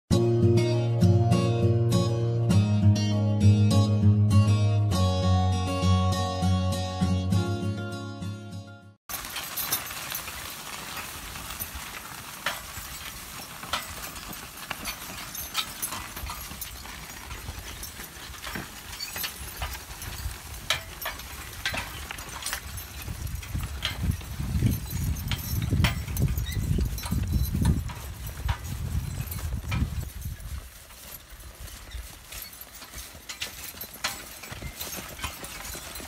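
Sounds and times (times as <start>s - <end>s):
harness and plow clinking: 9.1s - 36.0s
hooves thudding on soft ground: 9.1s - 36.0s.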